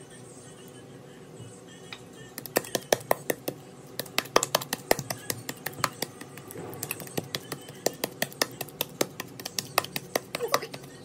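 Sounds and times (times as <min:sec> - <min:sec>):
pestle pounding dough in bowl: 0:02.4 - 0:11.0.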